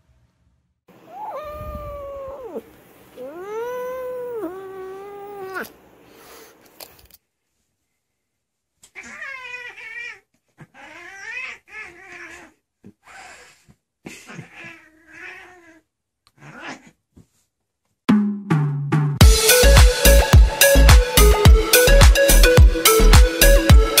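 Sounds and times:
cat yowling: 1.0s - 5.7s, 8.9s - 12.6s, 14.3s - 15.8s
music with a beat: 18.1s - 24.0s.

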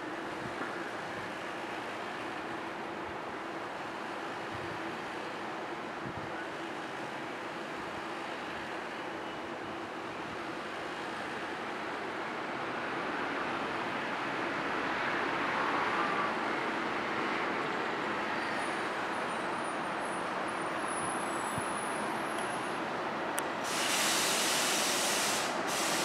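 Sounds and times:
subway train rumbling: 0.0s - 26.0s
loud hissing: 23.6s - 26.0s.

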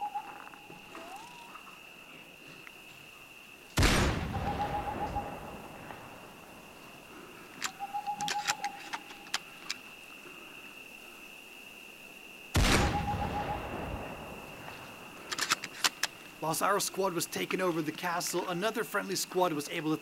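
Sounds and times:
high insect drone: 0.0s - 20.0s
airsoft rifle shots echoing: 3.8s - 5.5s, 12.6s - 14.2s
metallic clicks of rifle cycling: 7.6s - 9.8s, 15.2s - 16.2s.

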